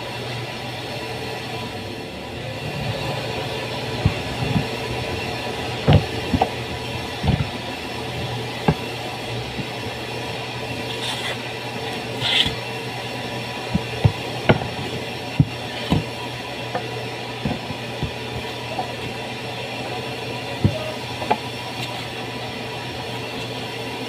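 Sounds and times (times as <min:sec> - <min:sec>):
steady hum: 0:00.0 - 0:24.0
wooden boards knocking on table: 0:04.0 - 0:09.8, 0:13.7 - 0:19.2, 0:20.6 - 0:21.9.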